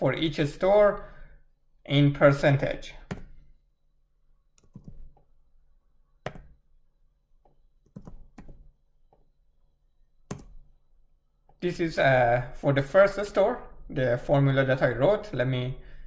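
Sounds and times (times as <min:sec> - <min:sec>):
computer mouse clicks: 0:03.0 - 0:03.5, 0:04.5 - 0:05.3, 0:06.2 - 0:06.6, 0:07.4 - 0:09.3, 0:10.3 - 0:10.7
keyboard keystrokes: 0:03.1 - 0:03.4, 0:04.6 - 0:05.2, 0:06.2 - 0:06.6, 0:07.8 - 0:09.2, 0:10.3 - 0:10.7.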